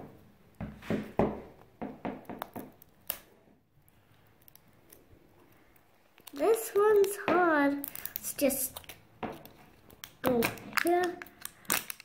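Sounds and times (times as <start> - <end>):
wrapping crinkling: 3.9 - 12.0.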